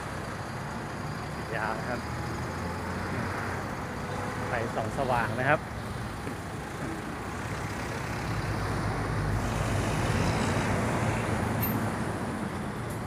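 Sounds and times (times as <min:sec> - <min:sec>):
traffic jam engines rumbling: 0:00.0 - 0:13.0.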